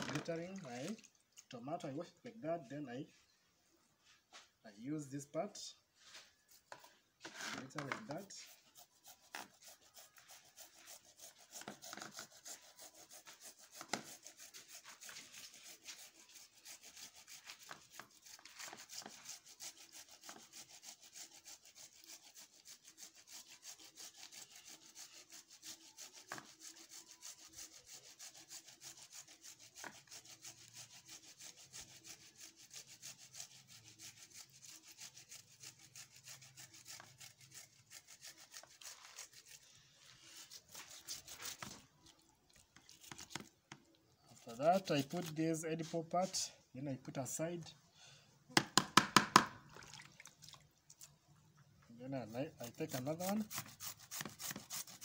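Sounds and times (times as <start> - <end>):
tomato grated on hand grater: 7.2 - 39.6, 44.4 - 46.4, 52.2 - 55.0.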